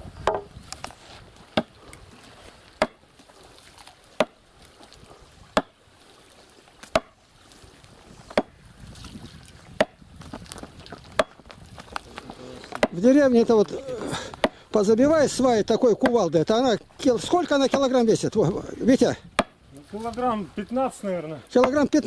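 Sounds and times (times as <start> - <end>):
sledgehammer striking wooden stake: 0.2 - 0.6, 1.6 - 1.8, 2.8 - 3.0, 4.2 - 4.4, 5.5 - 5.8, 6.9 - 7.2, 8.3 - 8.6, 9.7 - 10.0, 11.1 - 11.5, 12.7 - 13.0, 14.3 - 14.6, 15.9 - 16.3, 17.6 - 18.0, 19.3 - 19.6.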